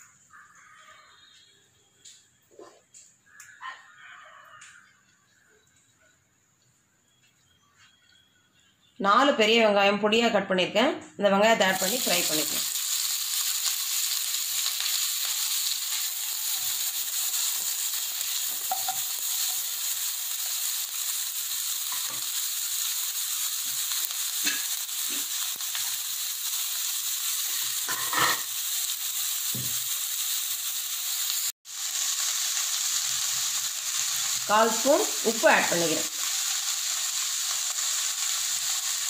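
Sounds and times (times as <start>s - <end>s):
onions sizzling in oil: 11.6s - 39.0s
spatula tapping and scraping: 18.6s - 19.5s.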